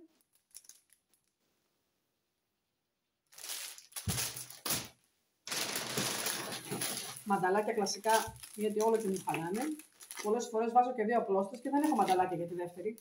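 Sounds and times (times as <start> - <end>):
plastic bag rustling: 3.3 - 10.5, 11.6 - 13.0.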